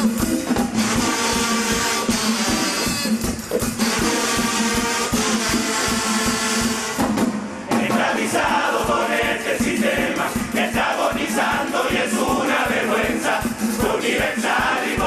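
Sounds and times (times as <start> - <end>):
drum beats: 0.0 - 15.0
voices chanting: 7.7 - 15.0.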